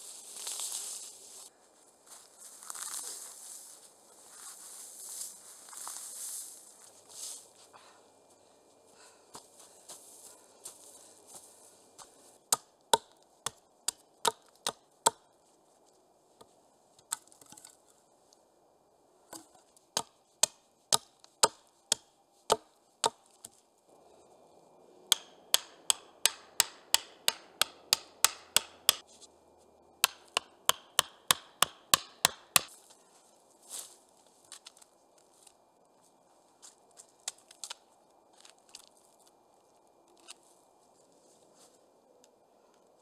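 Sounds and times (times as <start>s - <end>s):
hatchet chopping log: 12.5s - 15.3s, 19.4s - 23.5s, 25.1s - 29.0s, 30.0s - 32.7s.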